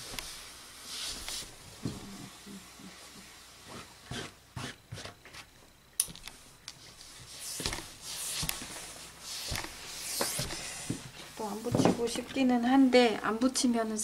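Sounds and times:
hands rustling fabric: 6.7s - 12.2s
steam iron hissing: 7.0s - 11.6s.

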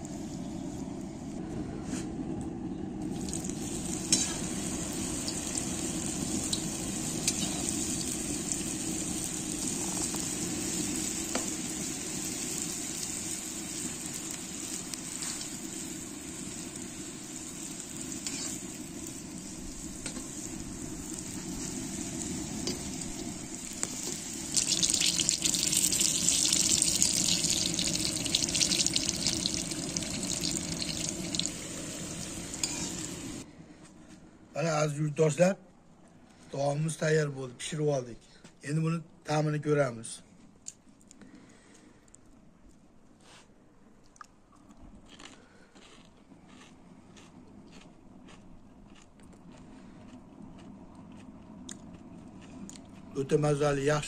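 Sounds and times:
hot oil sizzling and bubbling: 3.0s - 33.5s.

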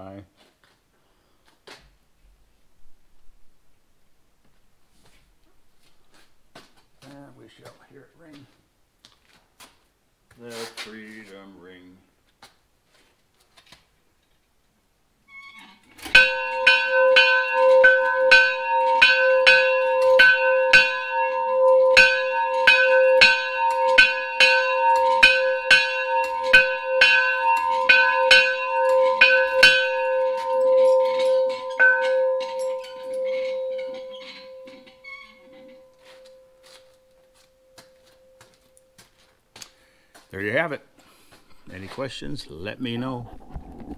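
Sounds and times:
large bell ringing: 16.1s - 39.3s.

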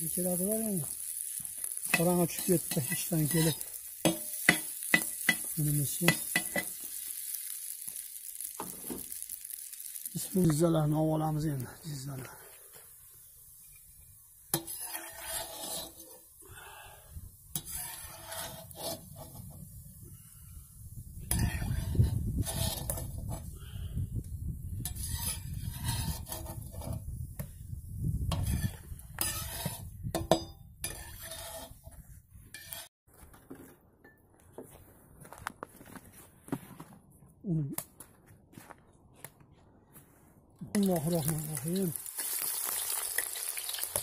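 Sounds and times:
metal utensil scraping a cauldron: 0.6s - 7.4s, 14.5s - 16.3s, 17.5s - 19.6s, 21.3s - 23.5s, 24.8s - 27.0s, 28.3s - 31.9s, 32.5s - 32.9s.

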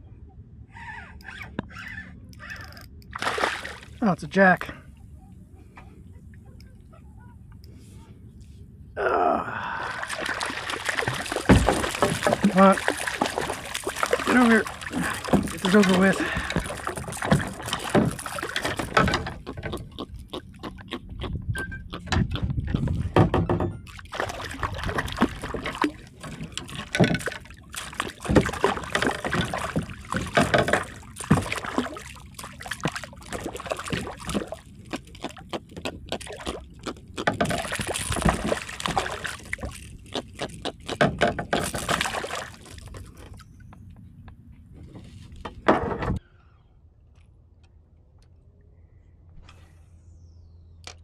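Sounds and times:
fish splashing in water: 3.1s - 4.0s, 9.8s - 20.5s, 23.9s - 43.0s.

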